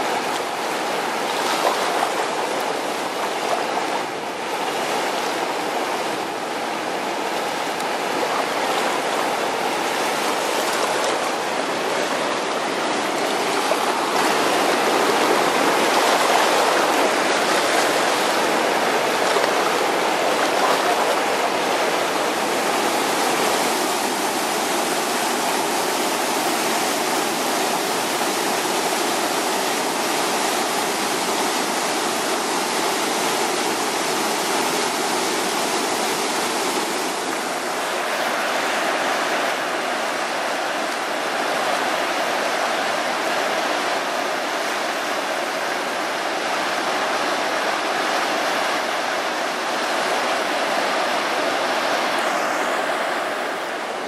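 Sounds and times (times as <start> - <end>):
river rushing over waterfall: 0.0 - 54.0.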